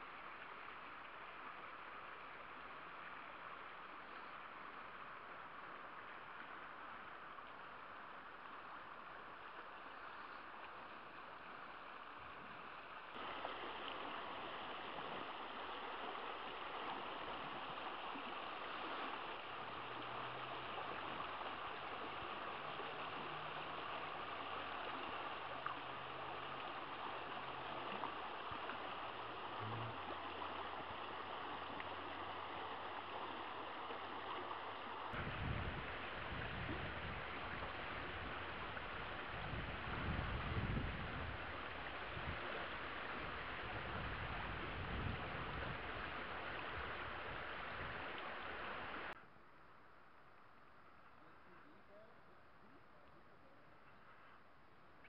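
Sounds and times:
river rushing over rocks: 0:13.1 - 0:35.2.

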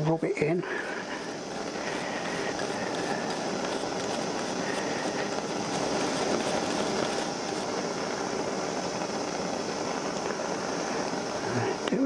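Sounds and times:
wire brush scrubbing metal: 0:00.9 - 0:07.7.

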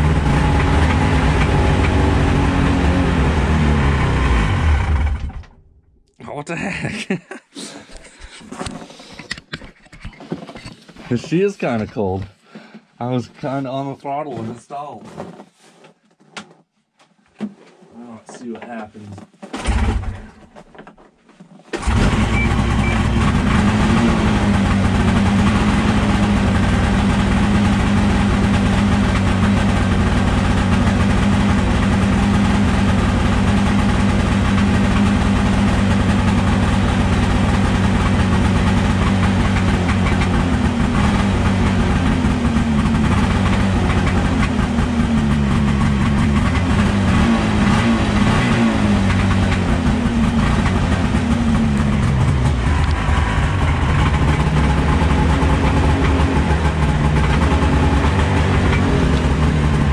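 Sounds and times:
snowmobile engine starting and idling: 0:00.0 - 0:05.8, 0:19.6 - 0:20.4, 0:21.8 - 0:59.9.

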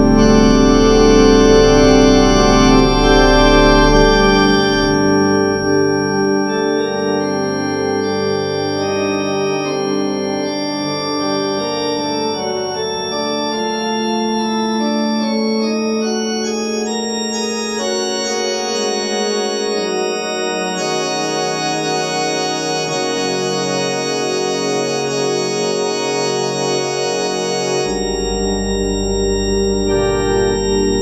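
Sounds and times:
deep organ pedal note: 0:00.0 - 0:31.0
electronic organ chords: 0:00.0 - 0:31.0.

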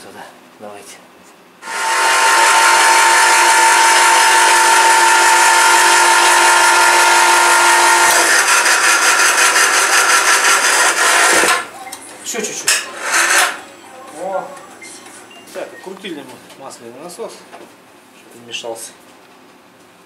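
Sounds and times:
electric motor whine: 0:01.6 - 0:11.6.

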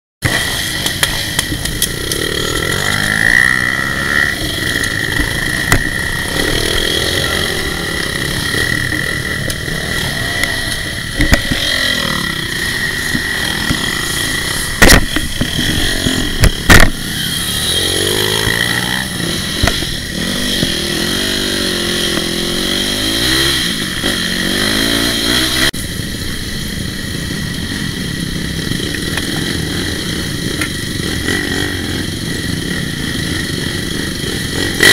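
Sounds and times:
dirt bike engines revving: 0:00.2 - 0:34.9
sharp loud knocks: 0:14.8 - 0:17.0.

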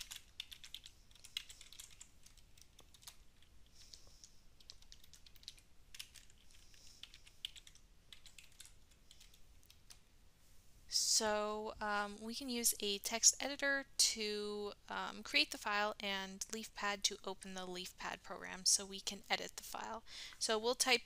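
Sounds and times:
faint keyboard typing: 0:00.0 - 0:10.1.

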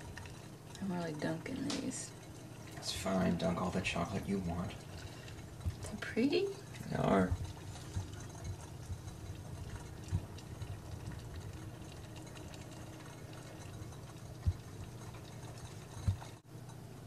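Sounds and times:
steady low hum: 0:00.0 - 0:17.0
soft dull thumps: 0:14.4 - 0:15.0.

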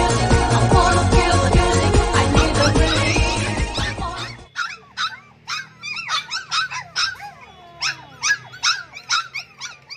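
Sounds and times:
puppies yelping and whining: 0:02.3 - 0:09.9.

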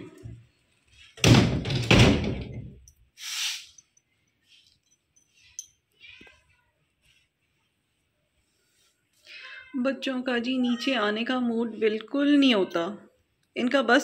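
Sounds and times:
short hiss: 0:03.2 - 0:03.9.

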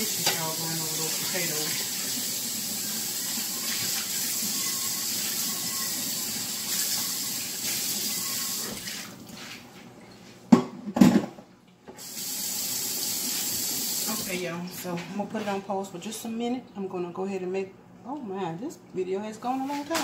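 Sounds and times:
water running from a tap: 0:00.0 - 0:09.2, 0:12.0 - 0:14.4.

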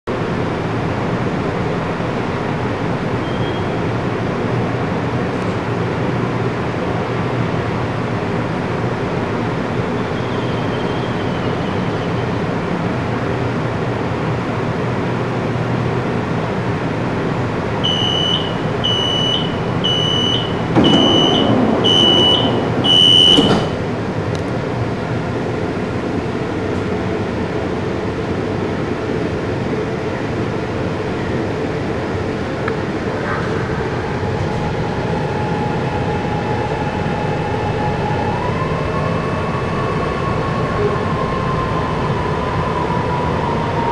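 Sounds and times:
train equipment humming: 0:00.1 - 0:43.9
sliding doors running shut: 0:17.8 - 0:25.6
short high warning beeps: 0:17.9 - 0:23.6
doors closing thump: 0:19.9 - 0:24.0.

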